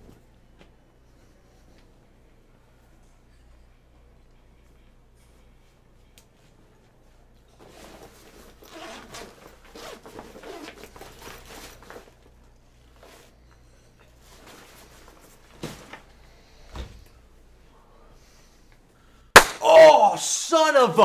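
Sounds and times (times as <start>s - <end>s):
zipper being worked: 7.6s - 12.0s
cloth rustling: 7.6s - 12.2s.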